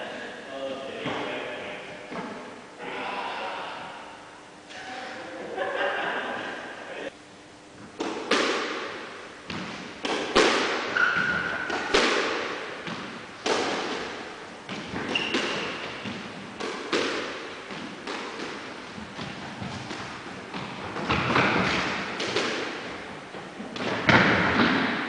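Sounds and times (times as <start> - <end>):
squash ball hitting rackets and walls: 7.8 - 25.0
high shoe squeaks: 10.9 - 11.7, 15.0 - 16.1.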